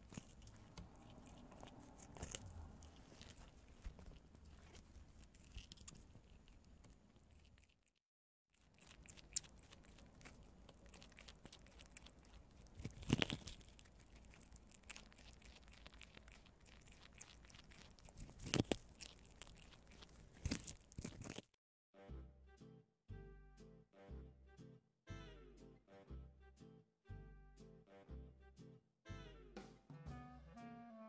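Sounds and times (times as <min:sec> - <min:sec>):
animals crunching corn: 0:00.0 - 0:21.6
music: 0:22.0 - 0:31.0.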